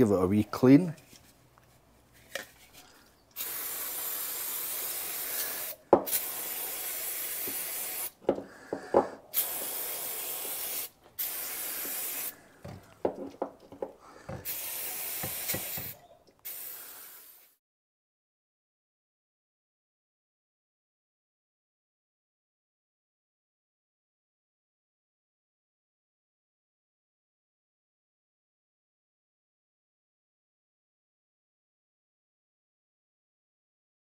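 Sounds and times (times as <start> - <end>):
aerosol spray bursts: 3.4 - 8.2, 9.3 - 12.4, 14.4 - 17.6.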